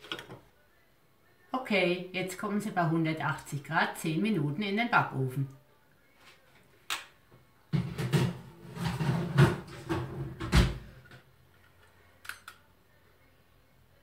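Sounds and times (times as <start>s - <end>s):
baking tray clattering and scraping: 7.8s - 11.0s.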